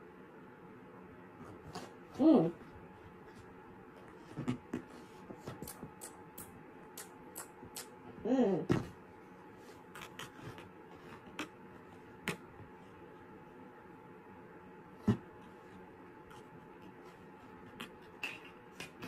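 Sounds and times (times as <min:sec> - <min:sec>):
person humming: 0:07.0 - 0:08.8.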